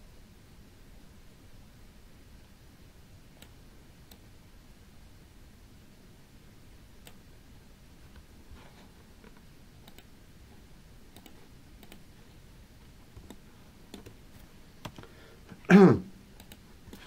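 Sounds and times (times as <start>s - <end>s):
computer mouse clicks: 7.0s - 7.2s, 9.2s - 10.1s, 11.1s - 12.1s, 13.1s - 14.2s, 14.8s - 15.1s, 16.4s - 17.0s.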